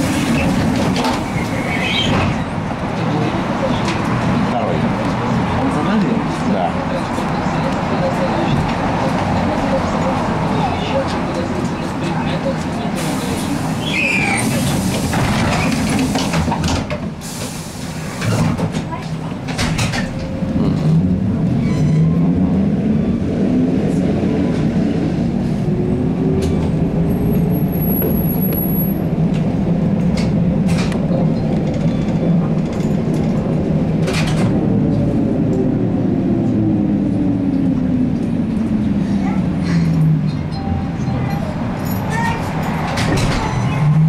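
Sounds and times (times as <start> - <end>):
road noise: 0.0 - 44.0.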